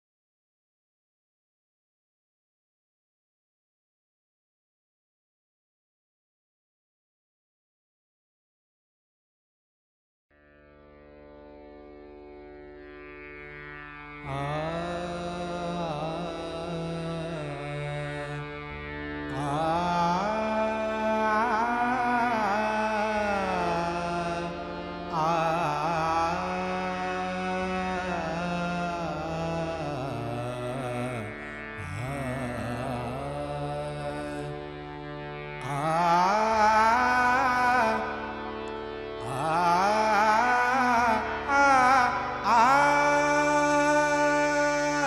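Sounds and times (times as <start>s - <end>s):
harmonium drone: 10.6s - 45.0s
man singing wordless phrases: 14.3s - 18.6s, 19.3s - 34.7s, 35.6s - 38.3s, 39.2s - 45.0s.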